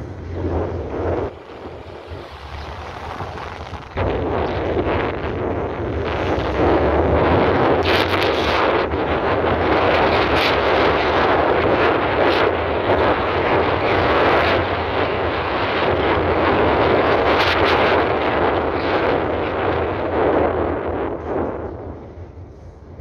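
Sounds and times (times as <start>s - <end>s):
car wind and tyre noise: 0.0s - 23.0s.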